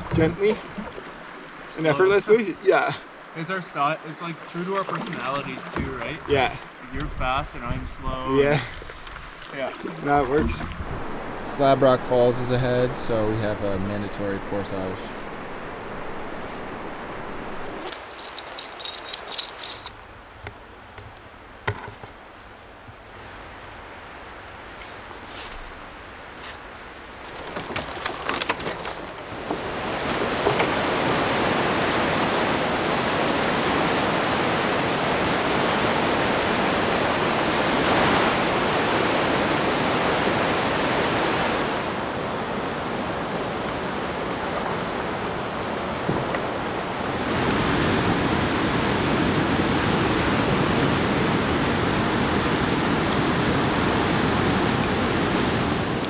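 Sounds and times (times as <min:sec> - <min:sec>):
rushing whitewater: 0:00.0 - 0:20.1, 0:25.8 - 0:56.0
gear clatter: 0:17.8 - 0:20.0.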